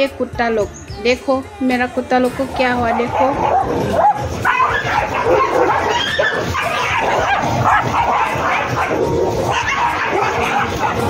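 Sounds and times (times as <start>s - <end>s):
dogs barking and yipping: 2.4s - 11.0s.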